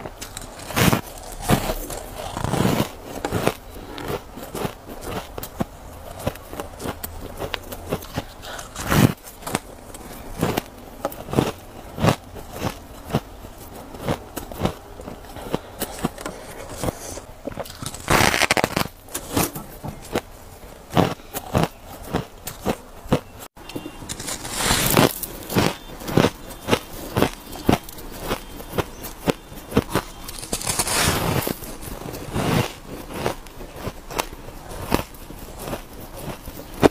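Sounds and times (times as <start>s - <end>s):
chewing crunchy ice: 0.0s - 36.9s.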